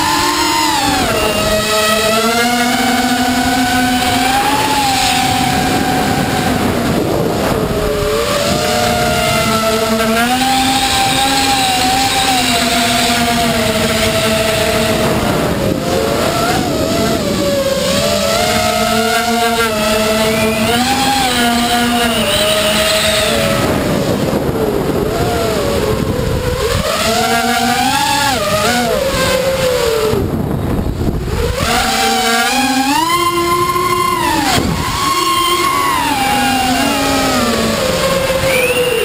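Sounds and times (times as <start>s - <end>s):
drone motors whining: 0.0s - 39.0s
rushing air noise: 2.8s - 18.9s.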